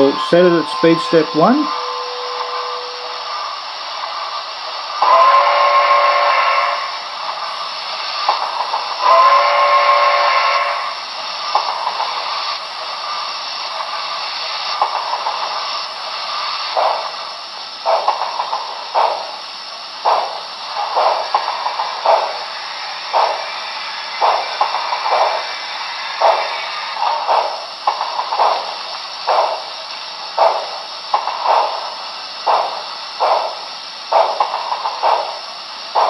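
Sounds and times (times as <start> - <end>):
steam locomotive whistle blasts: 0.0 - 3.5, 5.0 - 7.0, 9.0 - 11.0
steam hiss: 0.0 - 36.0.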